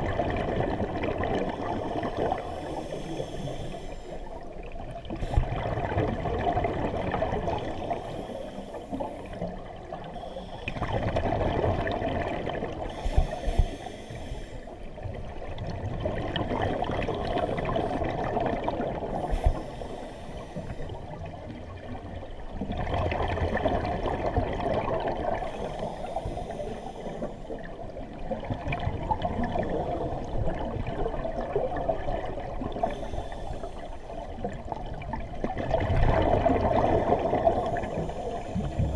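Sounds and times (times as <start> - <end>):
exhaled bubbles: 0.0 - 13.9, 15.0 - 38.9
diver breathing through regulator: 1.5 - 4.4, 7.6 - 9.5, 10.1 - 10.9, 12.9 - 14.8, 19.1 - 21.0, 25.4 - 27.6, 32.8 - 34.2, 37.2 - 38.9.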